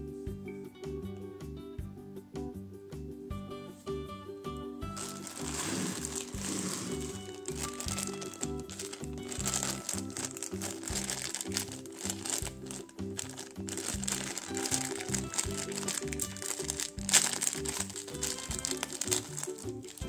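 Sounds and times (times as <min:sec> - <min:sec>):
background music with steady beat: 0:00.0 - 0:20.0
plastic bag crinkling: 0:05.0 - 0:20.0.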